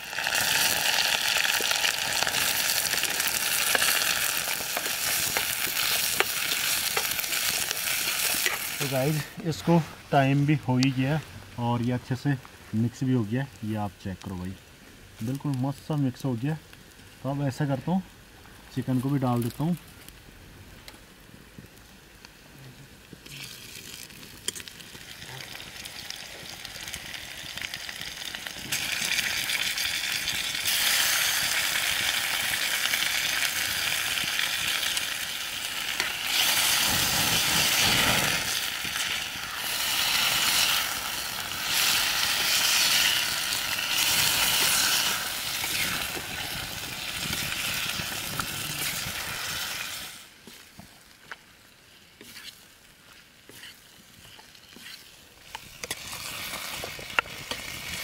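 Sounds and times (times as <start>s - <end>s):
chicken sizzling in hot oil: 0.0s - 9.4s, 23.2s - 58.0s.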